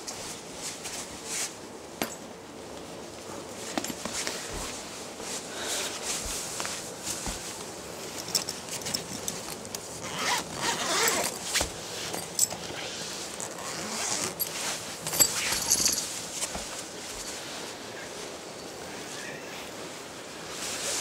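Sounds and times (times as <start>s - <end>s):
fabric rustling: 3.1s - 21.0s
zipper pulled open: 10.0s - 11.7s, 12.6s - 14.5s.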